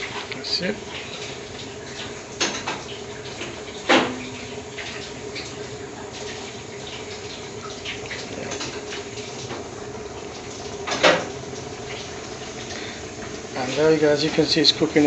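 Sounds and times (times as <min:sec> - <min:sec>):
food sizzling and crackling: 0:00.0 - 0:15.0
gas burner hiss: 0:06.0 - 0:15.0.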